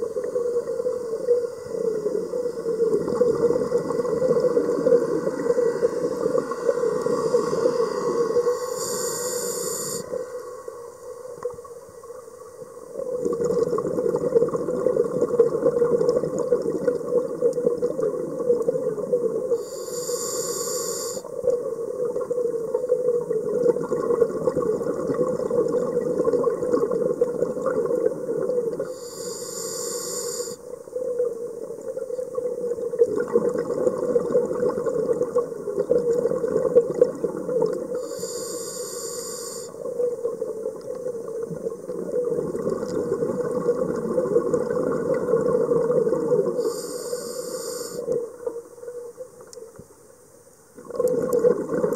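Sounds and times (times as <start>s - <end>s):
bubbling exhaled air: 0.0s - 10.8s, 12.9s - 30.6s, 32.5s - 48.6s, 50.8s - 51.9s
scuba regulator hissing inhalations: 4.6s - 10.6s, 19.6s - 21.3s, 28.8s - 30.6s, 37.9s - 39.9s, 46.5s - 48.2s.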